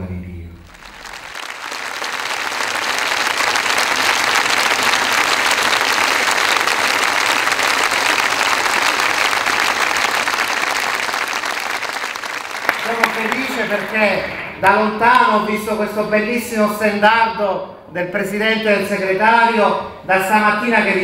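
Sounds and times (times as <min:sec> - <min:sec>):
audience applauding: 0:00.6 - 0:15.5.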